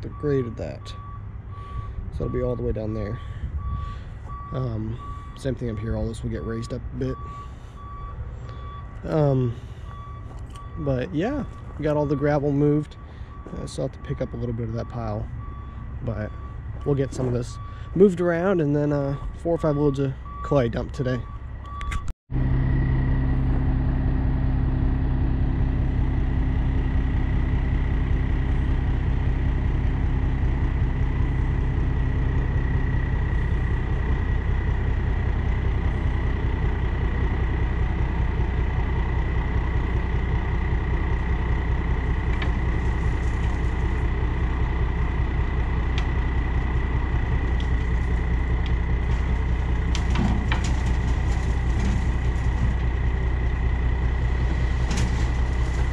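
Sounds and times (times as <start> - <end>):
diesel truck engine running: 0.0 - 55.9
knocks and rattles of sliding load: 45.6 - 55.9.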